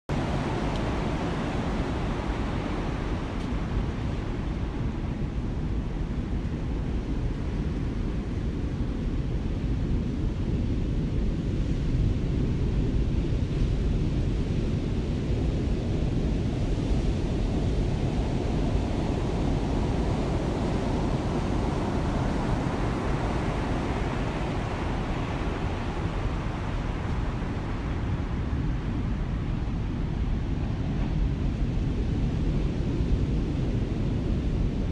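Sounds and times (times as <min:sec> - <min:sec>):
heavy ocean surf: 0:00.1 - 0:06.4, 0:16.3 - 0:34.9
wind: 0:00.1 - 0:34.9.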